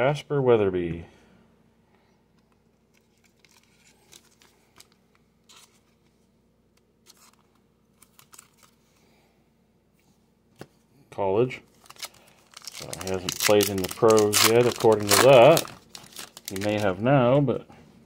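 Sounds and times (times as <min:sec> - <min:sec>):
plastic sleeve rustling: 0:02.9 - 0:06.2, 0:07.0 - 0:09.0, 0:11.7 - 0:17.2.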